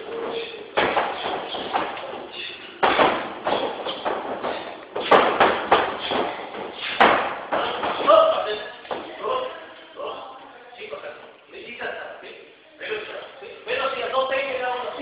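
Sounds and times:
bare feet landing on wooden floor: 0:02.8 - 0:08.1.

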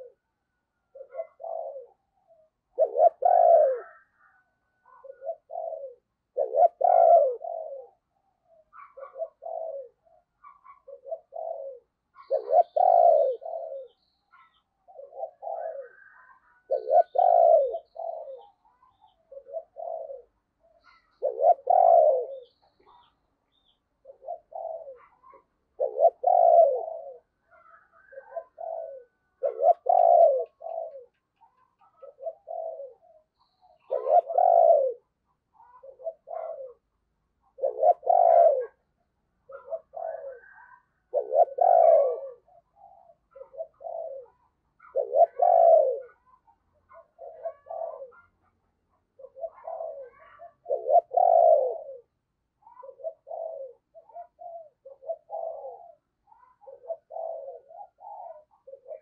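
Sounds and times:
dove cooing: 0:00.0 - 0:00.3, 0:00.9 - 0:59.0.

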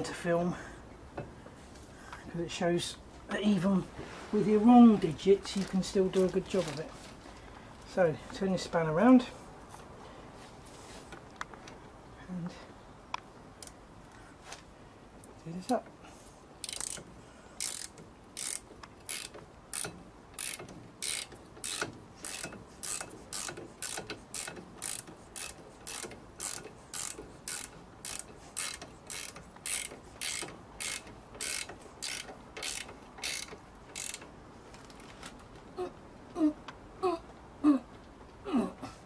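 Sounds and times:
ratchet spanner clicking: 0:16.6 - 0:34.3.

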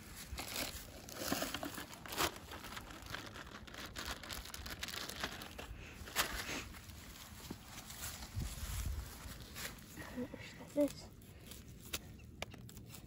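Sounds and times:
hands crinkling frozen fish bait: 0:00.0 - 0:09.9.

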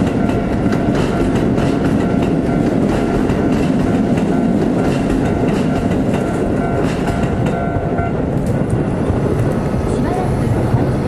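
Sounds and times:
level crossing warning bell: 0:00.0 - 0:08.8
train wheels clattering over rail joints: 0:00.0 - 0:11.0.

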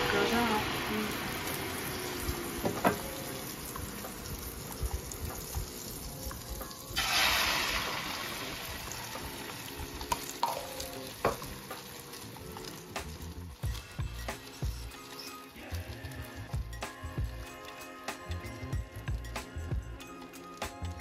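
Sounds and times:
butter and egg sizzling: 0:00.0 - 0:21.0.

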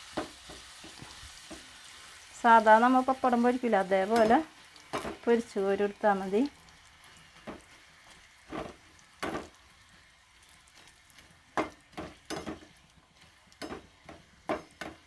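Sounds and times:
metal spoon knocking on pan: 0:11.6 - 0:12.7, 0:13.6 - 0:15.0.

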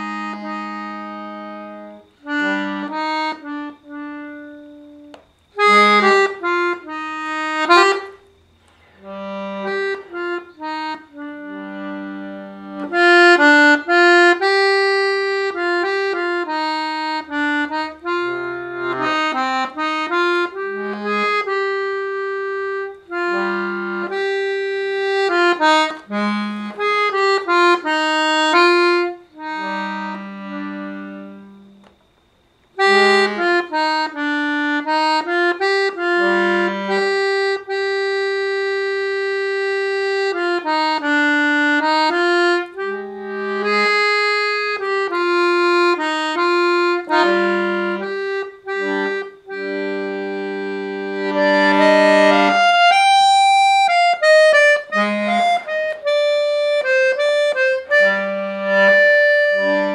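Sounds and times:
button accordion tune: 0:00.0 - 0:59.9.

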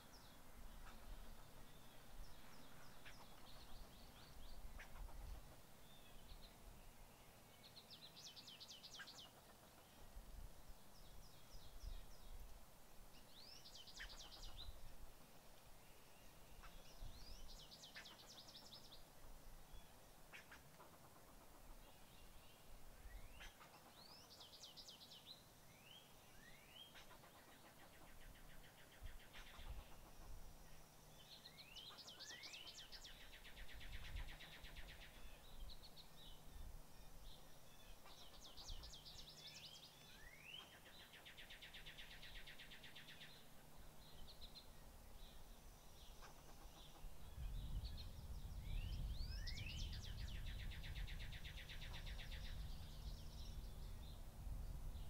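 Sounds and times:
songbird singing with trill: 0:05.8 - 0:10.1, 0:13.1 - 0:14.9, 0:15.8 - 0:19.1, 0:21.7 - 0:55.0.

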